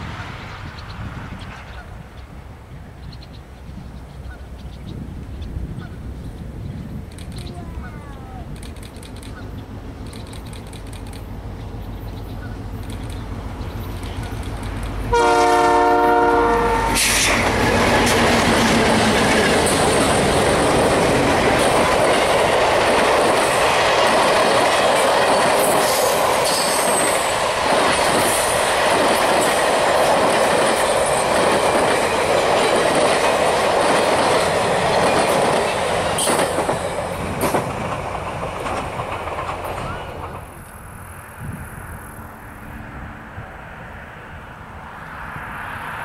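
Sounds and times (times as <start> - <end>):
train wheels rolling on rails: 8.4 - 42.2
clickety-clack over rail joints: 8.5 - 40.8.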